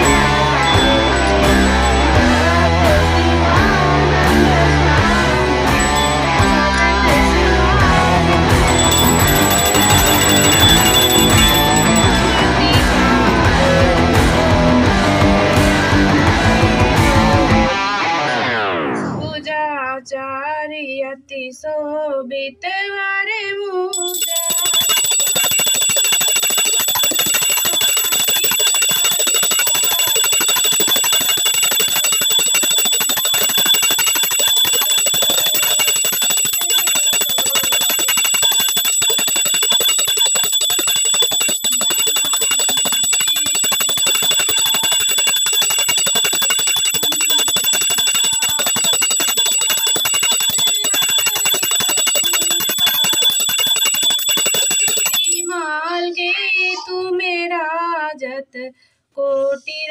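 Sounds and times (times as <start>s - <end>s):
hand bell rung rapidly: 0.0s - 3.3s, 5.7s - 12.9s, 24.0s - 55.7s.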